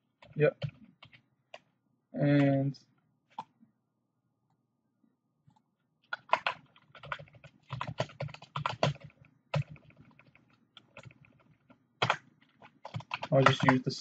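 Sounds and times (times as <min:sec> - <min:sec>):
typing on computer keyboard: 0:00.2 - 0:01.7, 0:06.1 - 0:13.8.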